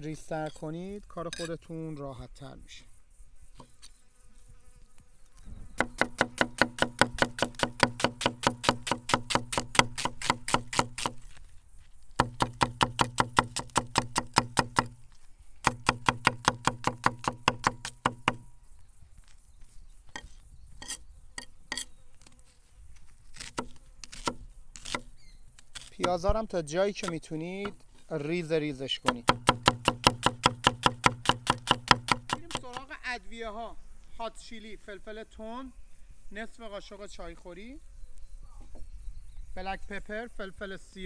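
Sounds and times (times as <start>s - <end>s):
knife chopping on wooden board: 5.8s - 11.2s, 12.2s - 15.0s, 15.6s - 18.4s, 29.0s - 32.8s.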